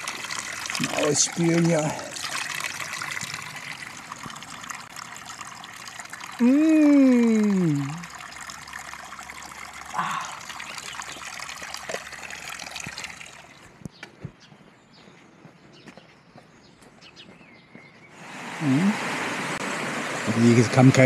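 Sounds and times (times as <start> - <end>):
water trickling from a spout: 0.0 - 13.8.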